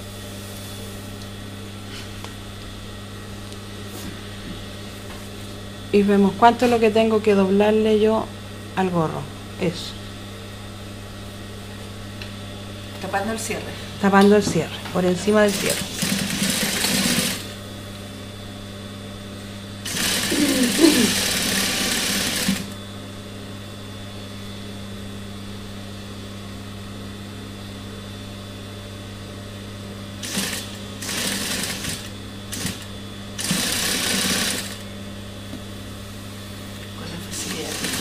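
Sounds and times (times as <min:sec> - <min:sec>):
steady low hum: 0:00.0 - 0:38.0
sewing machine stitching: 0:15.5 - 0:17.4, 0:19.8 - 0:22.7, 0:30.2 - 0:32.8, 0:33.4 - 0:34.8, 0:37.3 - 0:38.0.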